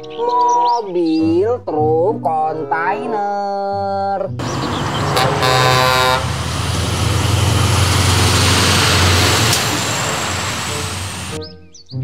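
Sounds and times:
truck diesel drone: 0:04.4 - 0:11.4
truck horn blast: 0:04.4 - 0:11.4.

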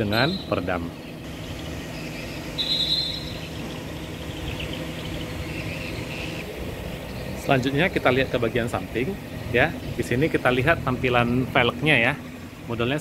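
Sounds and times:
high-pitched chirp: 0:00.0 - 0:07.4
low background hum: 0:00.0 - 0:13.0.

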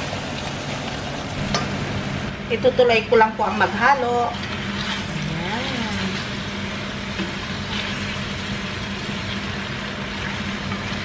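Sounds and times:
sauce sizzling in a pot: 0:00.0 - 0:11.0
steady low hum: 0:00.0 - 0:11.0
spatula stirring: 0:04.3 - 0:06.5.

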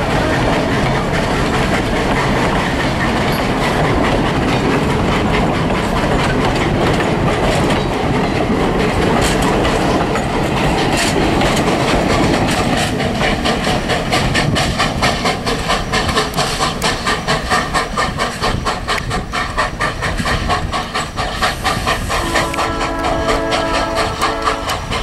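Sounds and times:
steam locomotive chuffing: 0:00.0 - 0:25.0
steam whistle chord: 0:22.2 - 0:24.7.

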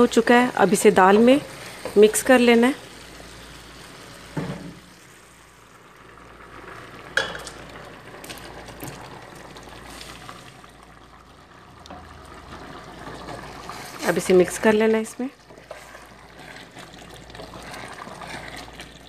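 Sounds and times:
curry bubbling in a pan: 0:00.0 - 0:19.0
wooden spoon stirring and knocking: 0:14.6 - 0:19.0.

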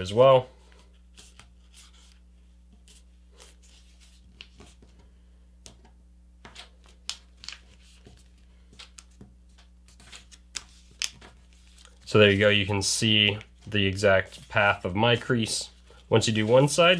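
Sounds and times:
faint steady hum: 0:00.0 - 0:16.9
paper rustling and crinkling: 0:06.5 - 0:16.9.

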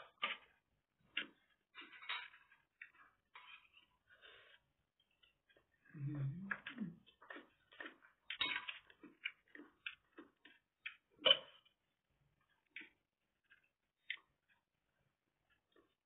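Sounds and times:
chewing and mouth clicks: 0:01.2 - 0:11.8, 0:12.4 - 0:14.7
low voice hum: 0:05.9 - 0:07.1.

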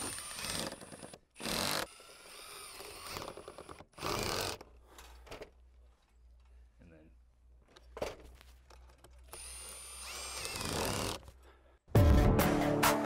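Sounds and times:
cordless drill driving fasteners: 0:00.0 - 0:05.5, 0:08.6 - 0:11.4.

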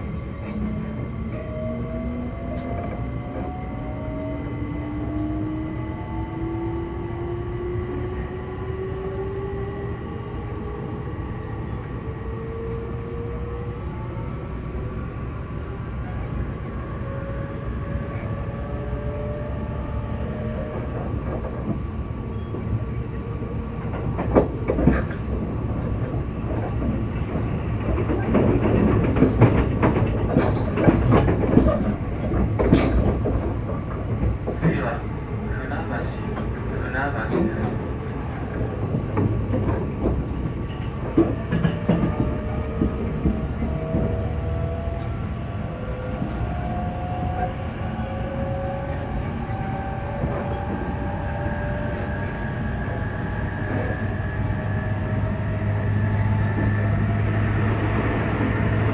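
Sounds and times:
train traction motors whining: 0:00.0 - 0:58.9
wheels rumbling on rail: 0:00.0 - 0:58.9
wheels clattering over rail joints: 0:23.9 - 0:34.8.

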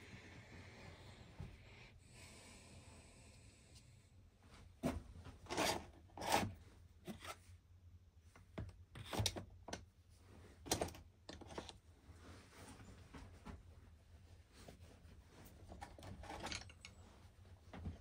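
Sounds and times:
handling clicks and scrapes: 0:15.5 - 0:17.0.

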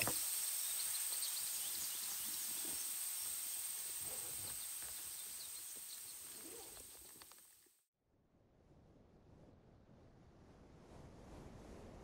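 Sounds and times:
high-pitched insect chorus: 0:00.0 - 0:07.6.

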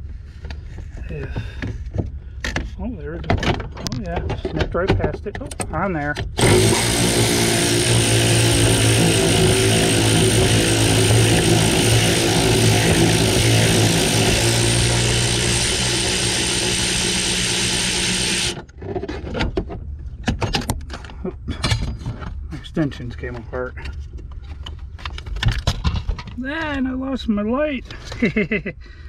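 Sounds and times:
power tool running: 0:06.2 - 0:18.7.

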